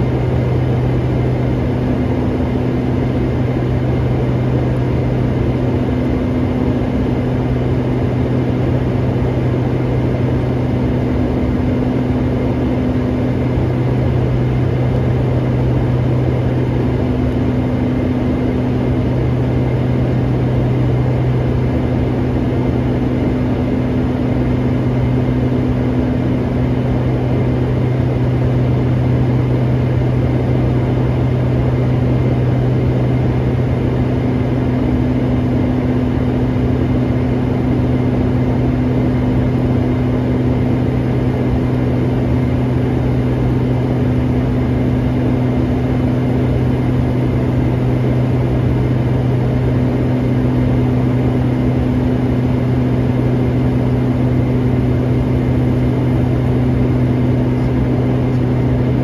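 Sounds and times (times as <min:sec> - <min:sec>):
light aircraft engine drone: 0:00.0 - 0:59.0.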